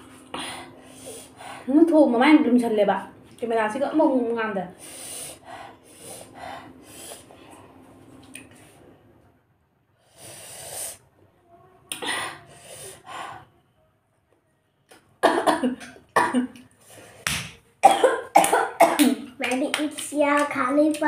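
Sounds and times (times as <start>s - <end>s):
woman coughing: 15.2s - 16.6s, 17.8s - 19.2s.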